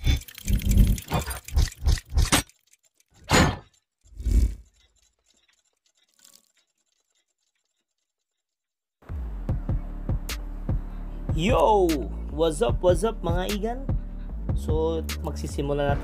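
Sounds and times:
metallic gear clicks and clanks: 0.0 - 8.6.

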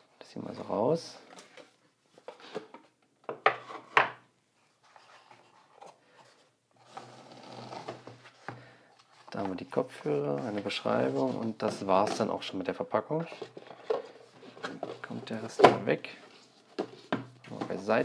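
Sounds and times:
case rubbing sliding out of box: 6.8 - 8.5.

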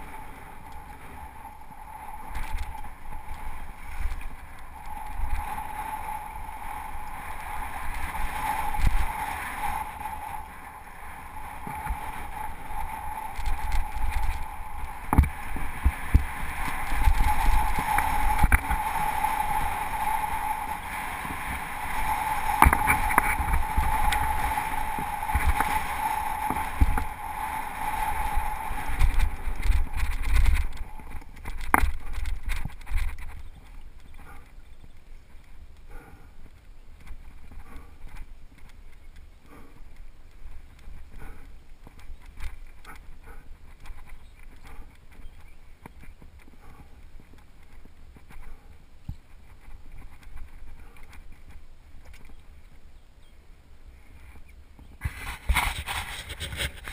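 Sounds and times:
bike rattling over stones: 0.0 - 10.5, 11.2 - 35.4
steady buzzing tone: 0.0 - 34.5
wind rumbling on microphone: 0.0 - 56.9.

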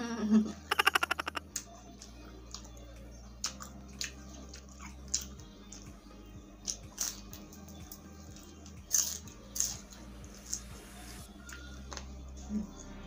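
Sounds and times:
person chewing food: 3.4 - 5.9, 6.6 - 10.6.

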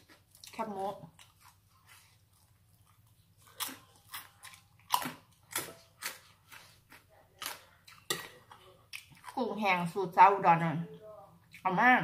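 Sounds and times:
person chewing crunchy food: 0.0 - 9.5.

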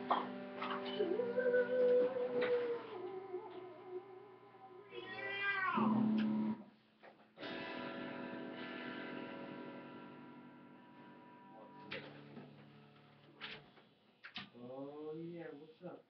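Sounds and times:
electric guitar chord ringing: 0.0 - 4.9, 5.8 - 6.6, 7.4 - 13.1
electric guitar note bending: 0.0 - 5.0, 5.8 - 6.6.

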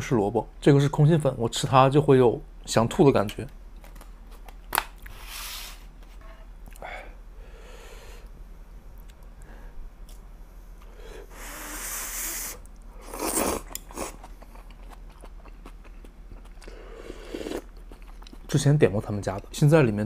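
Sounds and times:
noodle slurping: 11.5 - 14.2
chewing: 13.2 - 18.6.

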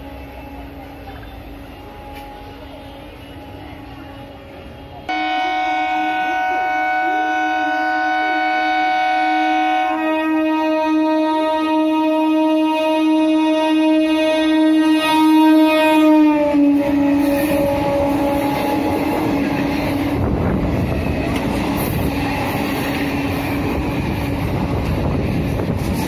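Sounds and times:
train rumble and wheel clatter: 0.0 - 26.0
train horn blast: 4.8 - 20.6.

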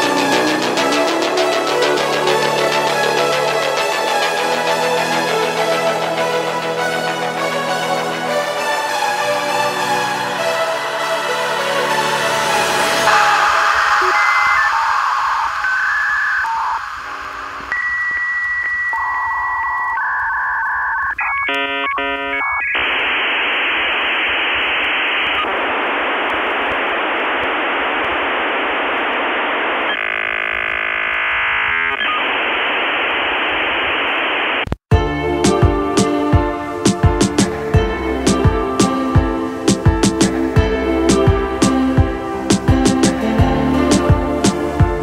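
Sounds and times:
dial-up modem tones and hiss: 13.1 - 34.8.

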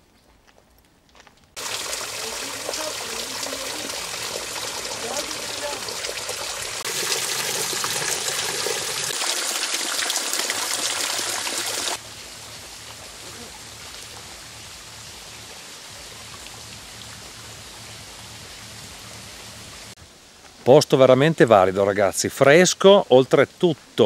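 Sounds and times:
water trickling down rock: 1.6 - 14.4
faint steady hiss: 12.0 - 24.0.

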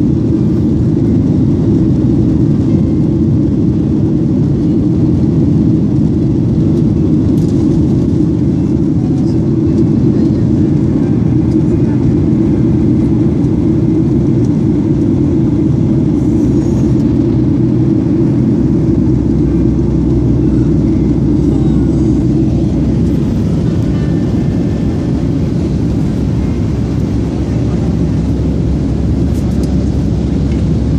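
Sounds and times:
airliner engine drone: 0.0 - 30.9
rushing air: 13.6 - 30.9.

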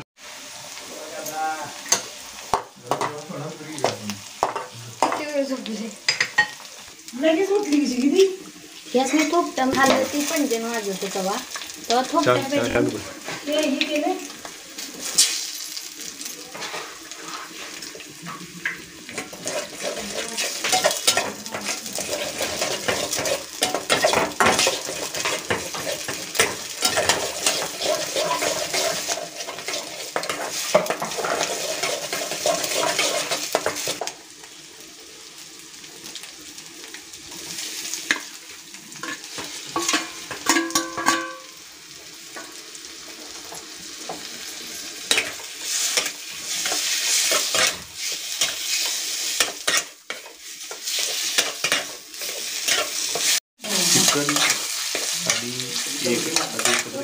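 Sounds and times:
food sizzling: 0.0 - 57.0
spatula scraping metal pan: 16.5 - 34.0, 45.0 - 57.0.

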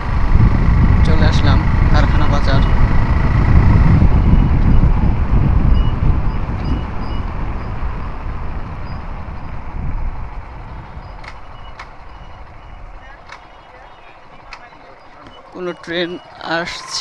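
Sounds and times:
wind on microphone: 0.0 - 16.8
motorcycle engine rumble: 0.0 - 17.0
sharp clicks: 11.2 - 15.9.

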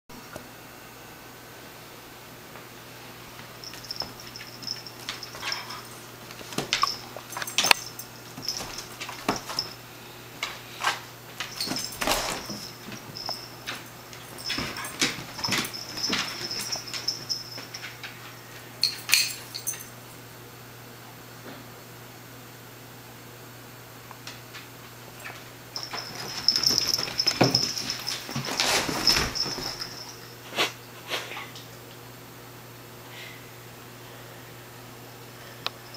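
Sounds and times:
paws and claws clicking on floor: 3.4 - 9.8, 10.4 - 19.9, 24.2 - 31.7
scuffling: 3.6 - 9.8, 10.4 - 18.0, 25.3 - 30.2.

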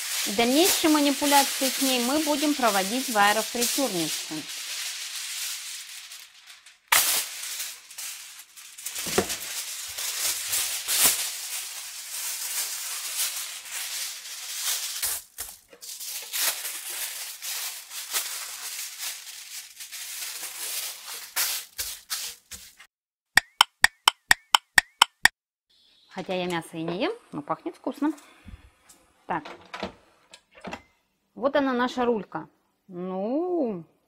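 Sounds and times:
kitchen foil crinkling: 0.0 - 22.9
sharp clicks: 23.4 - 25.3.

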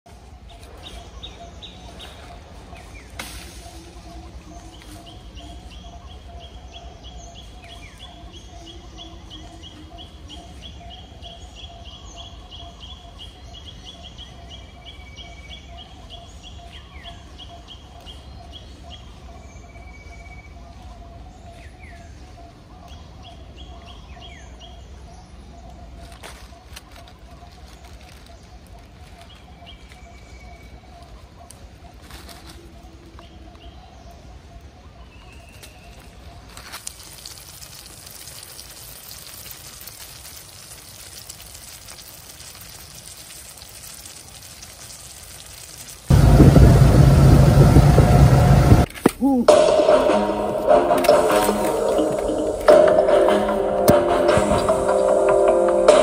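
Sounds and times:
constant low rumble: 46.1 - 56.0
steady pulsing hum: 46.1 - 56.0.

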